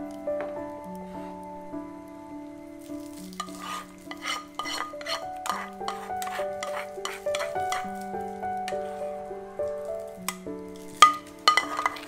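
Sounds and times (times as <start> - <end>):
soft background music: 0.0 - 12.0
spoon scraping in glass cup: 3.4 - 8.0, 11.0 - 12.0.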